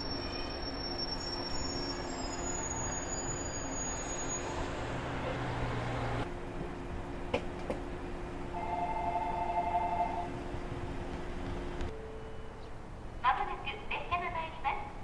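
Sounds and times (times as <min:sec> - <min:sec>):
electric train rumbling: 0:00.0 - 0:15.0
outdoor background noise: 0:00.0 - 0:15.0
two-note tone: 0:08.5 - 0:10.4.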